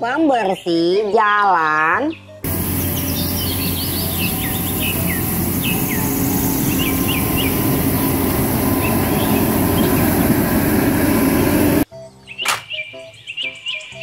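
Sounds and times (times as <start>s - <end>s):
small birds chirping: 2.1s - 14.0s
street sweeper engine hum: 2.4s - 11.9s
rotating brushes on road: 2.5s - 11.8s.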